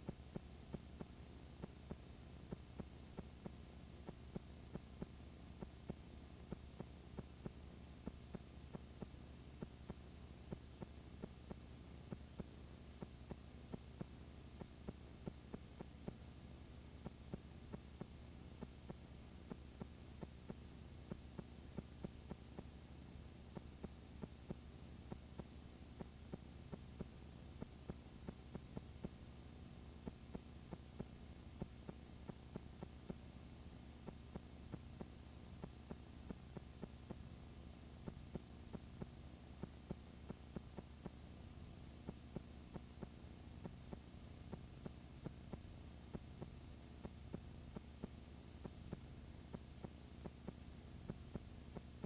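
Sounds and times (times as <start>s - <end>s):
faint low hum: 0.0s - 52.0s.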